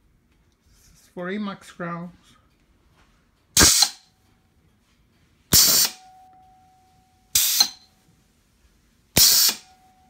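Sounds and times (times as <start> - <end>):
compressed air blast: 3.6 - 4.0, 5.5 - 6.0, 7.4 - 7.8, 9.2 - 9.7.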